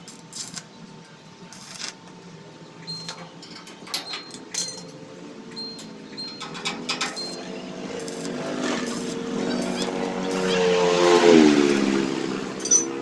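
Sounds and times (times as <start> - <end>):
arc welder crackling: 0.0 - 13.0
vehicle engine: 4.8 - 13.0.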